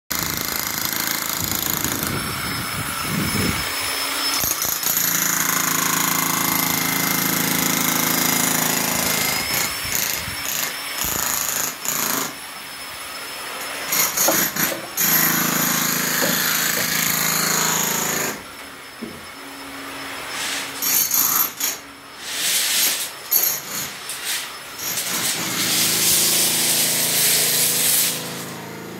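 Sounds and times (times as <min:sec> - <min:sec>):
demolition hammer chipping ground: 0:04.4 - 0:12.4, 0:13.8 - 0:19.3, 0:20.7 - 0:28.9.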